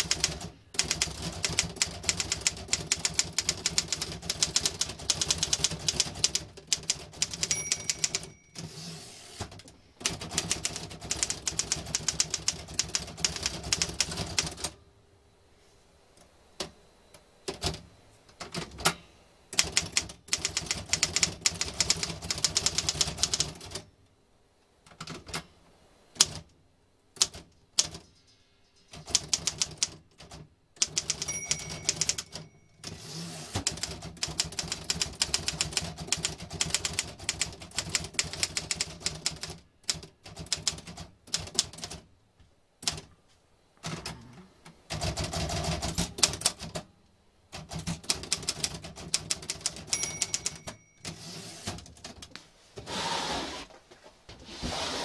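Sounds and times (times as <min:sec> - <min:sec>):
manual typewriter keystrokes: 0:00.0 - 0:08.8, 0:09.4 - 0:14.8, 0:17.5 - 0:17.8, 0:18.4 - 0:23.9, 0:26.2 - 0:26.5, 0:27.2 - 0:28.1, 0:28.9 - 0:42.1, 0:42.8 - 0:43.1, 0:44.9 - 0:46.9, 0:47.5 - 0:52.3.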